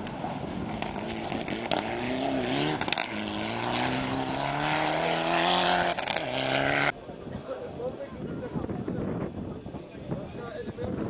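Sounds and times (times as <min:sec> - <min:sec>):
rally car engine accelerating: 0:00.0 - 0:07.0.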